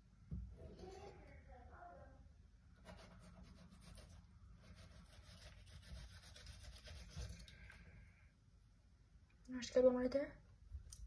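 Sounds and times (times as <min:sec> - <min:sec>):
knife scraping fish fillet: 0:02.8 - 0:07.5.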